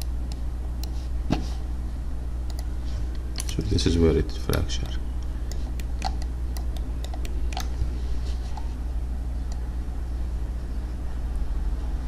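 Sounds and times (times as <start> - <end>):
steady low hum: 0.0 - 12.0
computer mouse clicks: 2.5 - 2.7, 4.5 - 7.8.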